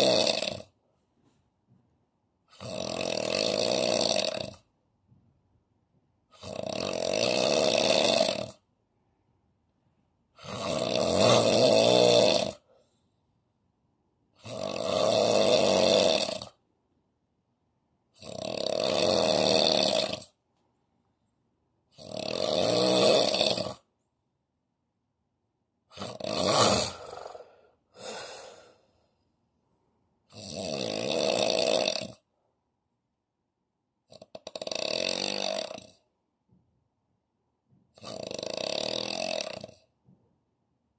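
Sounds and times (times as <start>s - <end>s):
man snoring heavily: 0.0s - 0.8s, 2.5s - 4.7s, 6.3s - 8.6s, 10.4s - 12.7s, 14.4s - 16.6s, 18.2s - 20.4s, 21.9s - 23.9s, 25.9s - 28.9s, 30.3s - 32.2s, 34.1s - 36.0s, 38.0s - 39.8s.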